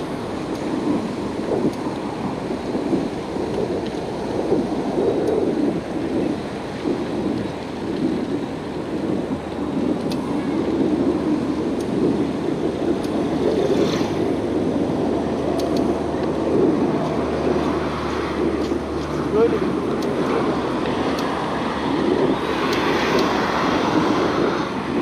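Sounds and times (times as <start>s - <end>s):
vehicle engine hum: 0.0s - 25.0s
wind rumble: 0.0s - 25.0s
cars driving past: 15.1s - 25.0s.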